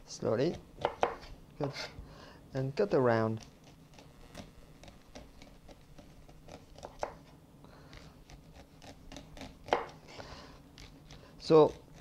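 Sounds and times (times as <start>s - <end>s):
knife cutting corn kernels: 3.2s - 12.0s.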